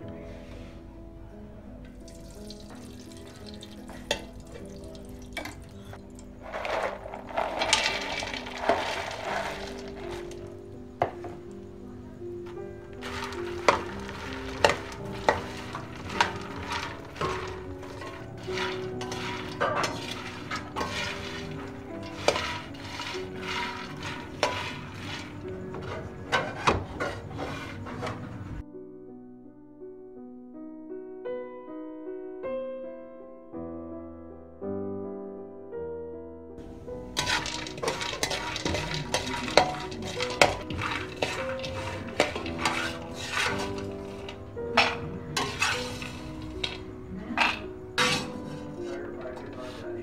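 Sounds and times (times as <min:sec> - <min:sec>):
soft background music: 0:00.0 - 0:50.0
nuts rattling and clinking: 0:02.0 - 0:11.3, 0:12.5 - 0:28.3, 0:36.6 - 0:50.0
spatula scraping seeds in pot: 0:02.2 - 0:11.2, 0:12.4 - 0:28.6, 0:36.6 - 0:50.0.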